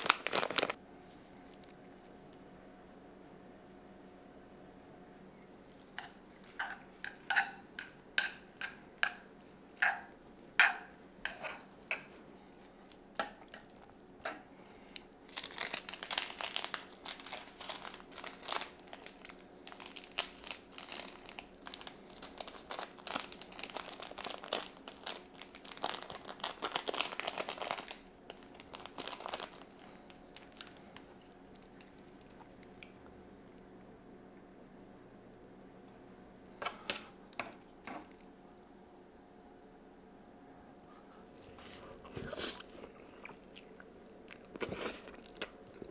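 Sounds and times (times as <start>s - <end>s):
plastic packet crinkling: 0.0s - 0.8s, 15.3s - 32.4s.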